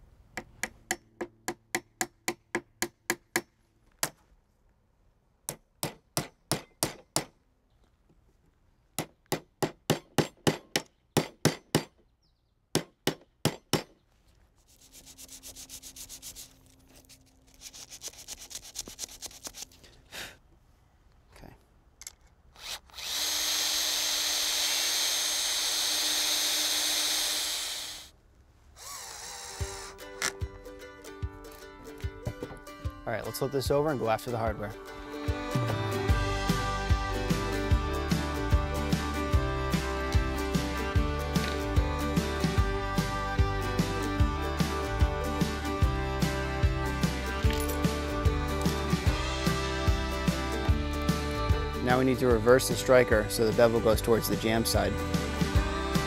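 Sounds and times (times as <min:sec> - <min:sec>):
sandpaper rubbing: 0:14.4 - 0:19.8
cordless drill driving screws: 0:22.5 - 0:28.1, 0:28.8 - 0:30.0.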